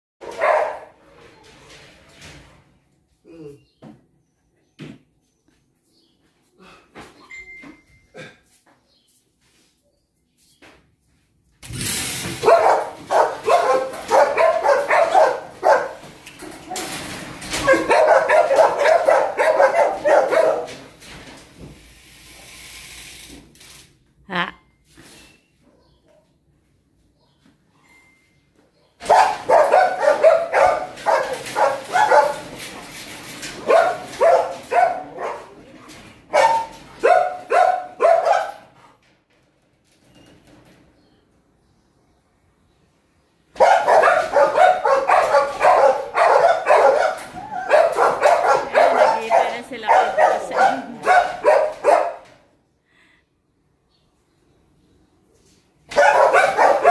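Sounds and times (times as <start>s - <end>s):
dogs barking: 0.2s - 1.0s, 12.4s - 16.9s, 17.5s - 21.0s, 28.8s - 32.6s, 33.5s - 38.8s, 43.6s - 52.4s, 55.9s - 56.9s.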